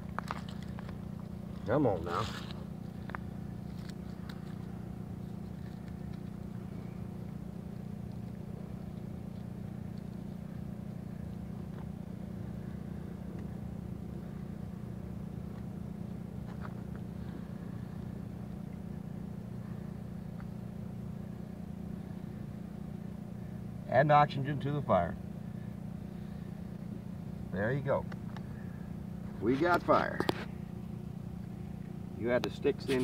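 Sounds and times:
steady low rumble: 0.0s - 33.0s
twigs clicking: 2.2s - 6.6s.

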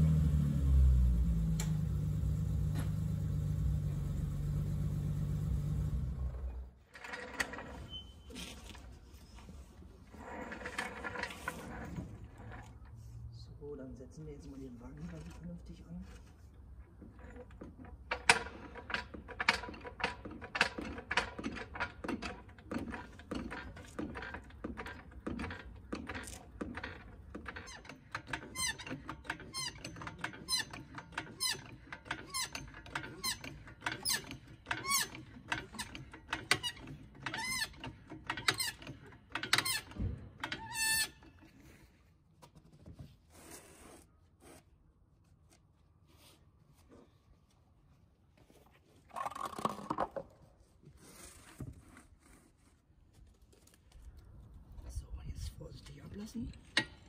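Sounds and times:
jack handle squeaking: 6.9s - 8.8s, 16.9s - 41.6s
hydraulic jack pumping clicks: 18.2s - 40.9s.

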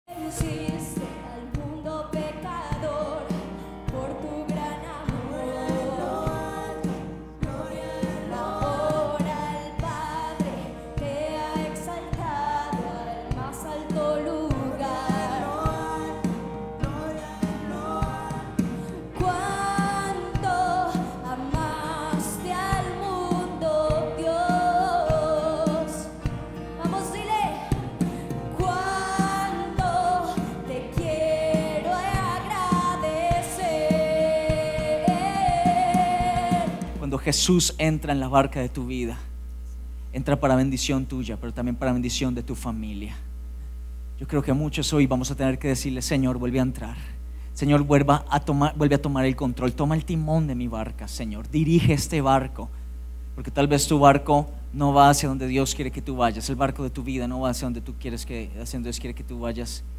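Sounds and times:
woman singing: 0.1s - 37.0s
band playing: 2.8s - 37.2s
steady drum beat: 5.1s - 37.4s.

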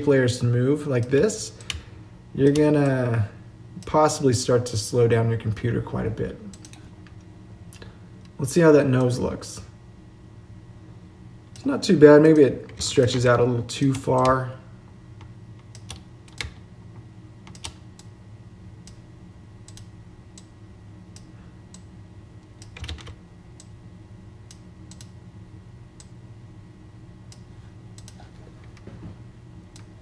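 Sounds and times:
steady low hum: 0.0s - 30.0s
computer mouse and keyboard clicks: 28.0s - 28.9s.

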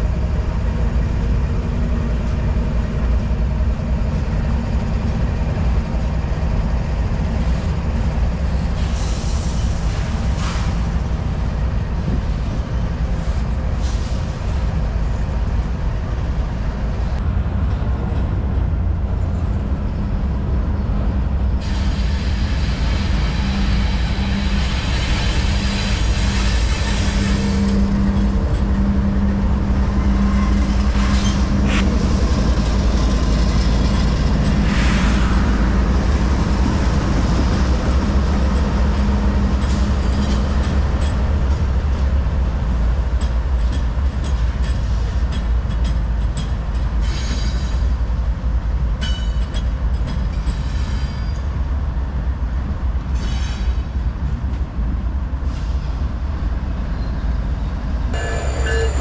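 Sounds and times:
locomotive engines rumbling: 0.0s - 59.0s
sharp squeals: 58.2s - 59.0s.

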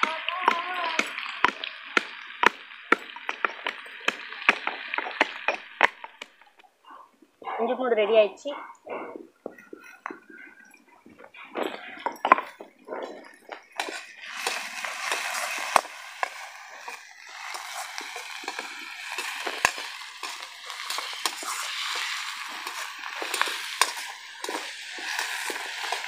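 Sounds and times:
onions sizzling in oil: 0.0s - 6.3s, 13.6s - 26.0s
metal ladle scraping a pan: 13.7s - 26.0s.

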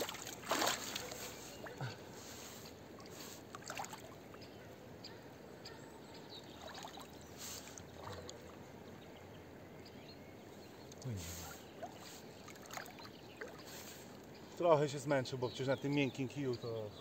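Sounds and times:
small water splashes: 0.0s - 4.3s, 6.5s - 8.6s, 11.7s - 14.3s
river water lapping at bank: 0.0s - 4.8s, 6.4s - 9.6s, 10.8s - 14.6s.

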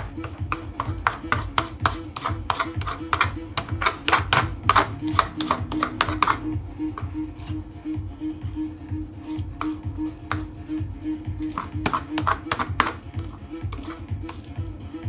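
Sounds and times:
painting knife scraping paint: 0.0s - 7.7s, 11.4s - 14.6s
background music with steady beat: 0.0s - 15.0s.

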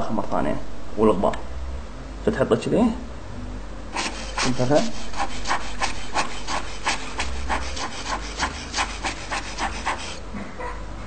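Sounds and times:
air blower puffs: 3.9s - 10.2s.

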